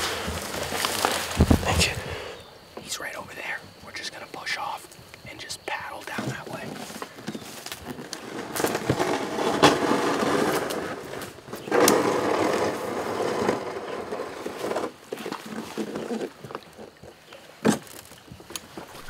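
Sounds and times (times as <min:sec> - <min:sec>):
boat hull knocking and scraping: 0:06.1 - 0:19.0.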